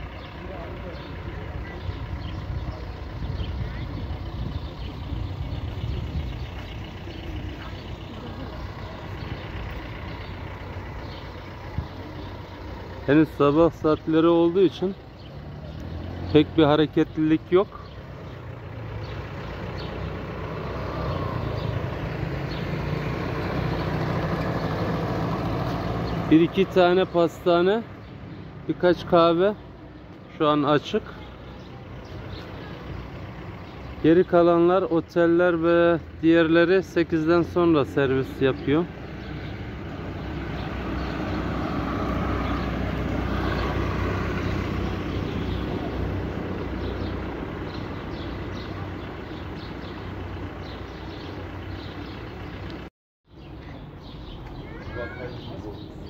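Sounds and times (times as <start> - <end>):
vehicle engine humming: 0.0 - 56.0.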